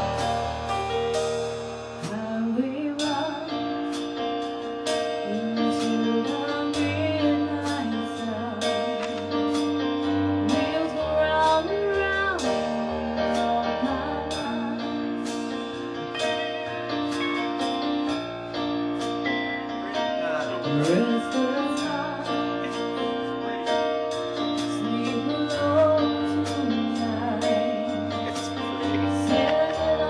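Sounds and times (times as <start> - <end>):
bass guitar: 0.0 - 30.0
drums: 0.0 - 30.0
keyboard: 0.0 - 30.0
woman singing into microphone: 2.0 - 3.9, 5.2 - 9.5, 10.4 - 15.4, 20.6 - 23.1, 24.4 - 30.0.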